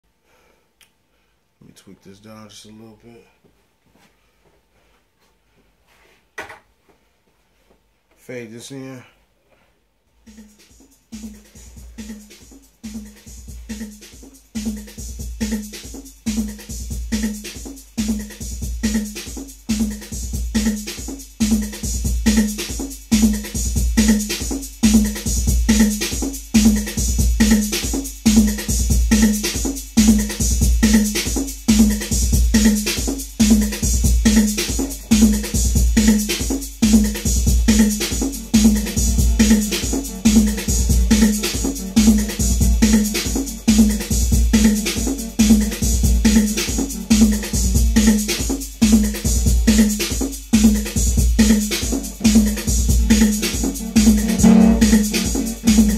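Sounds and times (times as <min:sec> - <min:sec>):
drum machine beat: 0:10.2 - 0:55.9
repeating synth note: 0:53.8 - 0:55.9.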